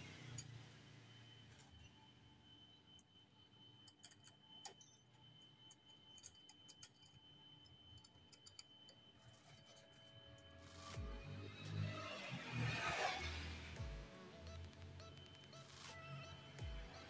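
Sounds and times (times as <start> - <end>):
faint steady high tone: 0.0 - 17.0.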